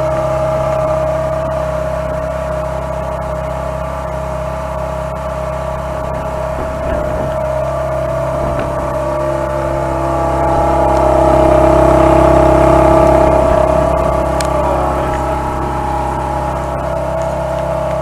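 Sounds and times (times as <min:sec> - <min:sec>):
car engine idling: 0:00.0 - 0:18.0.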